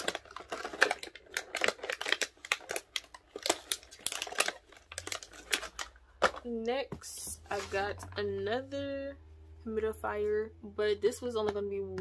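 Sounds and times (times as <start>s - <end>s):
packaging crinkling: 0.0s - 6.5s.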